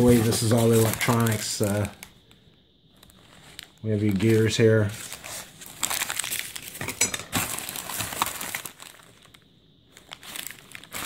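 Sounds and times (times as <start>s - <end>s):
paper and plastic bags crinkling: 0.0s - 11.0s.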